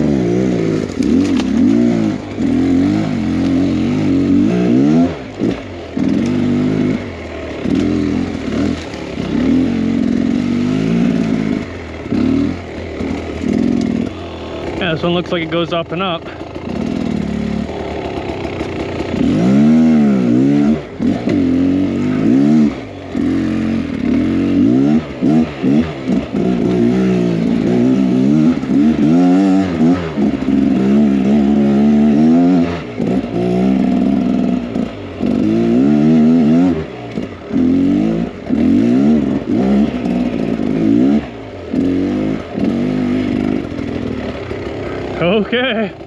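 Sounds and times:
two-stroke engine revving: 0:00.0 - 0:46.0.

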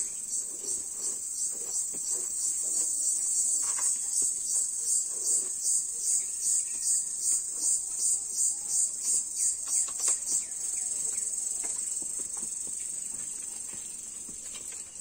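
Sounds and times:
insects buzzing shrilly: 0:00.0 - 0:11.5.

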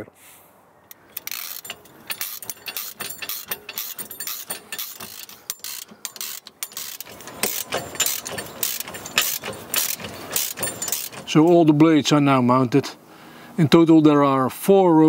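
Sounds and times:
ratchet wrench clicking: 0:00.9 - 0:11.6.

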